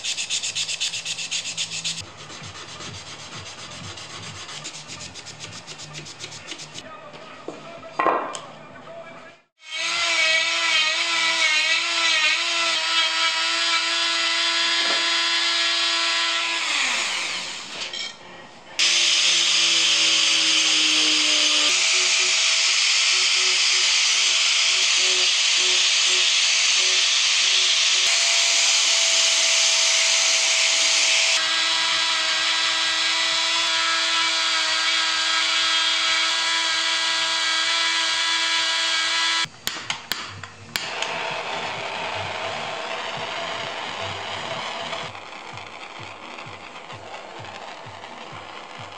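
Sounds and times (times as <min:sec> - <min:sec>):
angle grinder grinding wood: 0:00.0 - 0:06.8, 0:18.8 - 0:39.5, 0:40.8 - 0:48.9
rotary tool whining: 0:18.8 - 0:39.5, 0:40.8 - 0:48.9.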